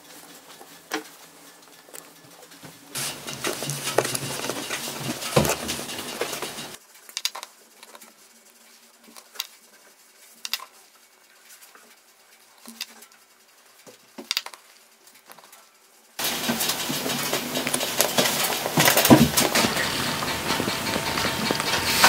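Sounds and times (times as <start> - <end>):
wooden sticks clattering: 3.0 - 7.4, 16.2 - 22.0.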